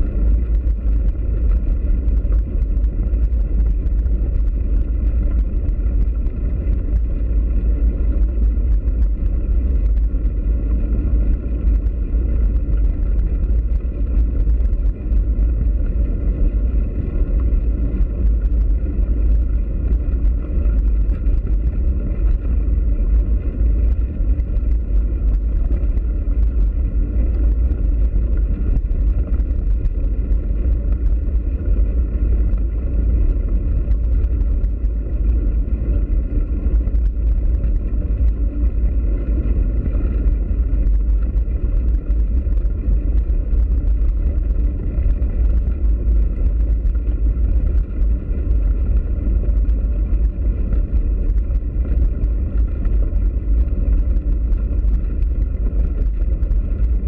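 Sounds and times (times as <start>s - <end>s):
faint ticks and rattles: 0.0s - 57.0s
wind on microphone: 0.0s - 57.0s
bicycle tyres on dirt track: 0.1s - 57.0s.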